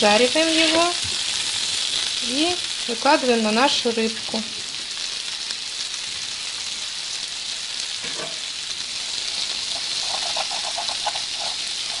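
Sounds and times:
onion sizzling in frying pan: 0.0s - 12.0s
utensil scraping pan: 8.0s - 8.4s, 9.2s - 12.0s.

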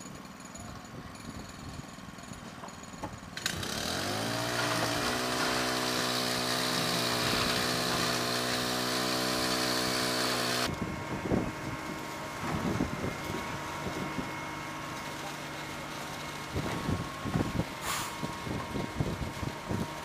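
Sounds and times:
small engine running at high speed: 3.0s - 20.0s.

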